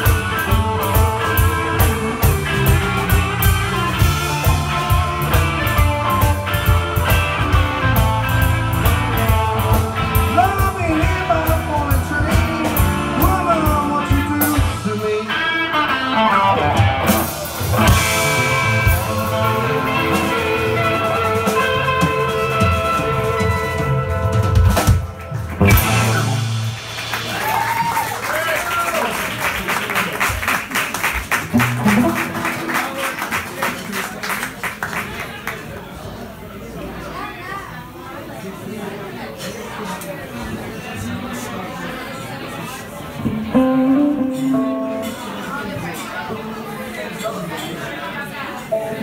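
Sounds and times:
electric guitar bent notes: 0.0s - 27.3s, 31.5s - 33.1s, 43.2s - 46.7s
bass: 0.0s - 30.5s, 31.2s - 33.6s, 43.2s - 46.4s
drums: 0.0s - 37.2s, 37.8s - 47.3s.

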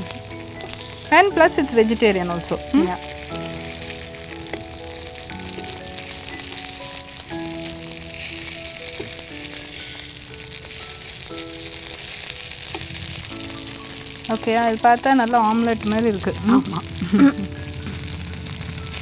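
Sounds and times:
background music: 0.0s - 19.0s
food sizzling in oil: 0.0s - 19.0s.

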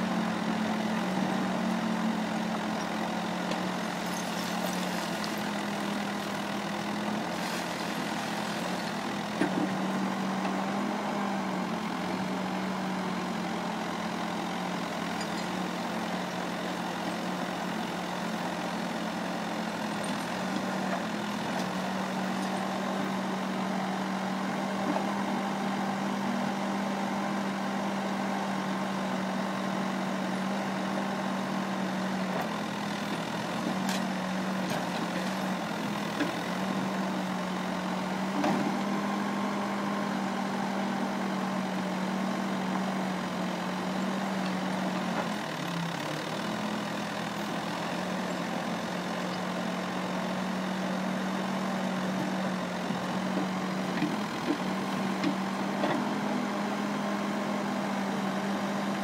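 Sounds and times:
diesel engine running: 0.0s - 59.0s
backhoe digging rubble: 0.3s - 11.0s, 13.8s - 17.3s, 18.7s - 23.6s, 32.2s - 37.0s, 51.9s - 56.2s.

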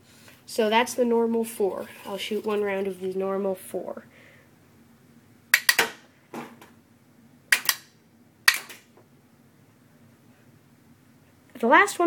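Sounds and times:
rubber band gun snapping clicks: 5.6s - 6.0s, 7.5s - 7.9s.

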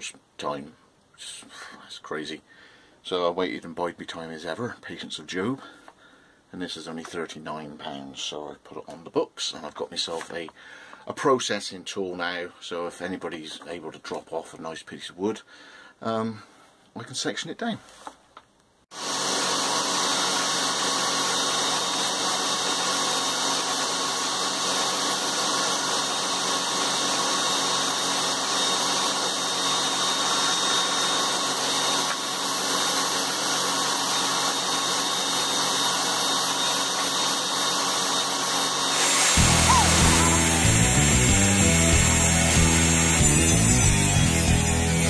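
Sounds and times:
electric power tool motor running: 18.9s - 45.0s.

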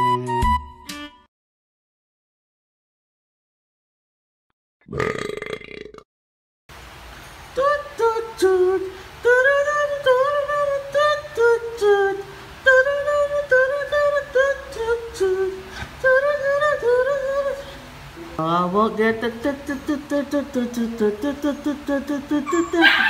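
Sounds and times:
background music melody: 0.0s - 1.3s, 18.1s - 23.0s.

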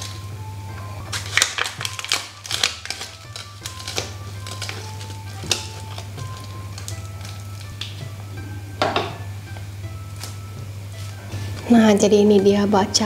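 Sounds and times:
leaf wrapper crackling: 0.0s - 0.3s, 1.0s - 8.1s, 10.0s - 11.7s
light instrumental music: 0.0s - 13.0s.

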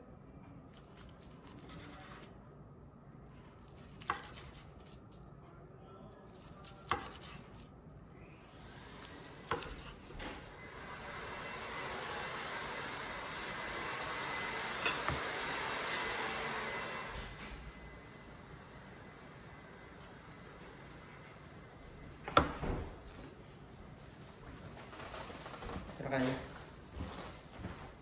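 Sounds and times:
knife slicing: 0.7s - 2.3s, 3.6s - 5.1s, 6.3s - 7.7s, 9.0s - 10.5s.

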